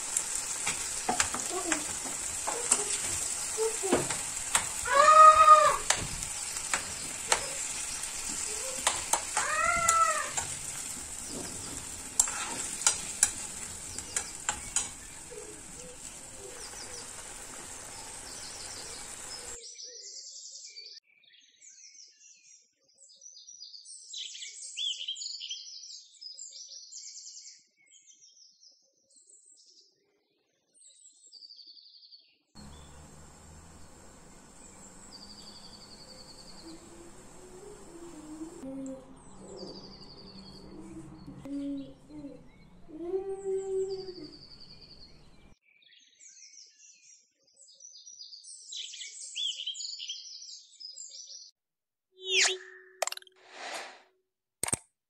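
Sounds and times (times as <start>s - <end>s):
meat sizzling in frying pan: 0.0s - 19.6s, 32.6s - 38.6s
metal spoon clicking on pan: 4.0s - 4.8s, 8.8s - 10.8s, 12.1s - 16.0s
faint high chirps: 32.6s - 38.6s, 52.2s - 53.4s
spoon squeak: 52.2s - 53.4s.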